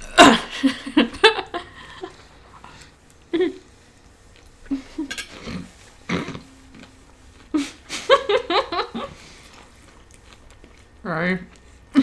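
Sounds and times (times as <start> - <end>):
woman laughing and giggling: 0.3 - 2.3, 3.3 - 3.7, 7.5 - 9.3.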